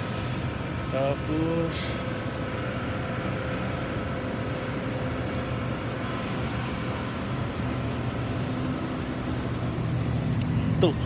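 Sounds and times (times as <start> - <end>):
refrigerated display cases humming: 0.0 - 11.0.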